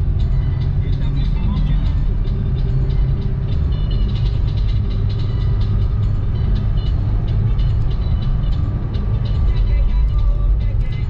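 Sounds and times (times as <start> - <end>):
car engine and road rumble: 0.0 - 11.0.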